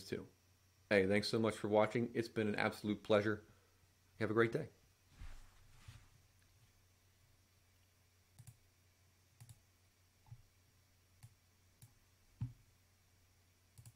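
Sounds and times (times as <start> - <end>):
computer mouse clicks: 8.4 - 8.6, 9.4 - 9.6.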